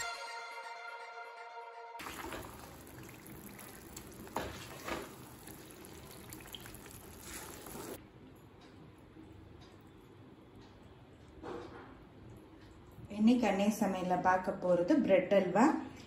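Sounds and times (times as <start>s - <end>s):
food sizzling in a pan: 2.0s - 8.0s.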